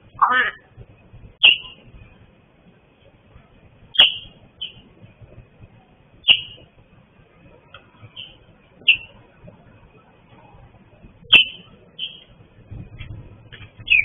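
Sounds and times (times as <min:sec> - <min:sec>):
bird calling sharp high notes: 0:01.4 - 0:01.8, 0:04.0 - 0:04.8, 0:06.2 - 0:06.6, 0:11.3 - 0:12.3.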